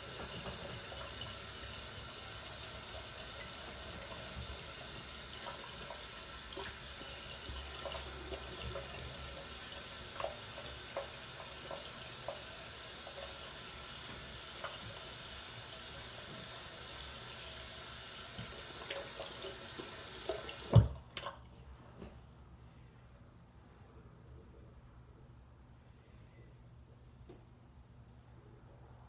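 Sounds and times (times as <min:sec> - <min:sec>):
sink tap running: 0:00.0 - 0:21.3.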